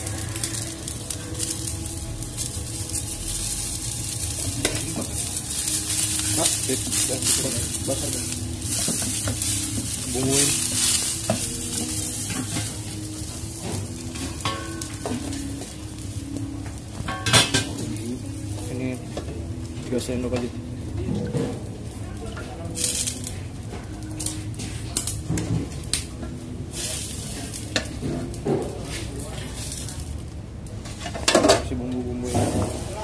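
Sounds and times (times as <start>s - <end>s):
noodles sizzling in a wok: 0.0s - 20.9s, 21.5s - 31.6s, 32.2s - 33.0s.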